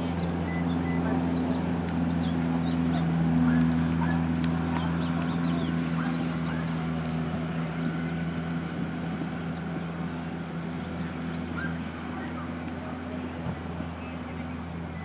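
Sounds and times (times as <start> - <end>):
low mechanical drone: 0.0 - 15.0
bird chirps: 0.1 - 6.7.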